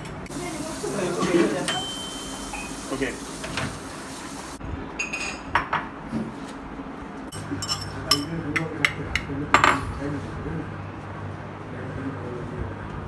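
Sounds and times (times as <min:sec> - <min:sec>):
microwave running hiss: 0:00.0 - 0:04.6
dishes and fork clinking: 0:07.3 - 0:09.8.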